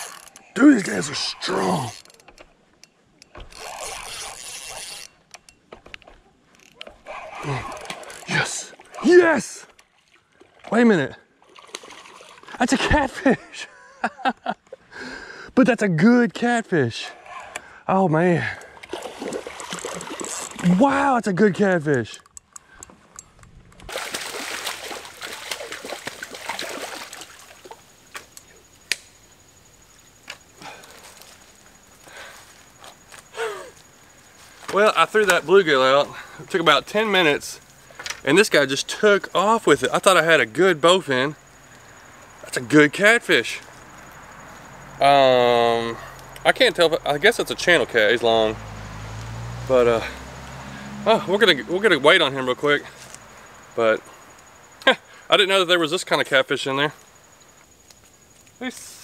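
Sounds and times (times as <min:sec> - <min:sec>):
fishing reel whirring: 0:00.0 - 0:00.4, 0:03.4 - 0:05.2, 0:07.0 - 0:08.3
water splashing from wading: 0:06.9 - 0:12.6, 0:18.7 - 0:20.8, 0:23.9 - 0:28.0.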